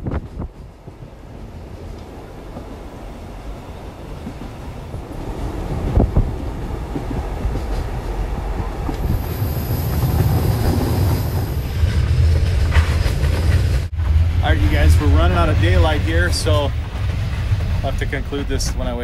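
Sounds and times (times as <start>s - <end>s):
train wheels rumbling on rails: 0.0s - 19.0s
high wheel squeal: 9.0s - 11.9s.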